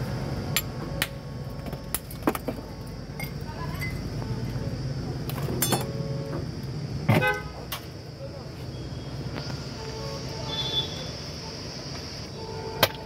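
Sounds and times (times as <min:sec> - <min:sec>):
street traffic hum: 0:00.0 - 0:13.0
ice and glass bottles clinking: 0:05.6 - 0:05.9.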